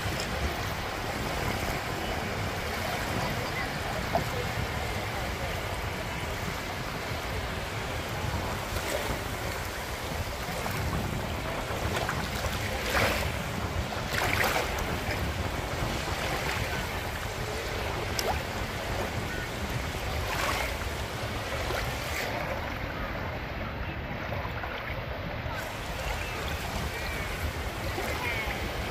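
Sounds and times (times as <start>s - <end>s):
waves lapping on pebbles: 0.0s - 22.4s
wind rumble on microphone: 0.0s - 28.9s.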